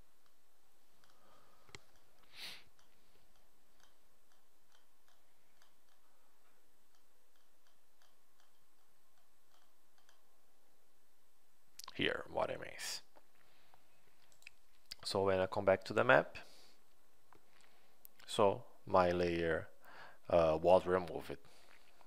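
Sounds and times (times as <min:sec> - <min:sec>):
computer mouse clicking: 0:14.2 - 0:14.6.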